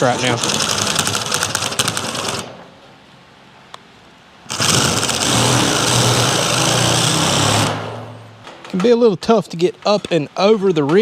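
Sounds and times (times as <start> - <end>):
power shear cutting metal sheet: 4.5 - 8.2.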